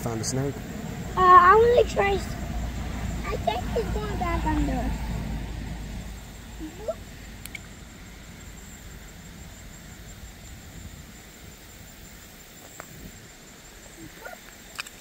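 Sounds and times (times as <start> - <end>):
steady low rumble: 0.0 - 14.0
faint clicks: 7.4 - 7.7.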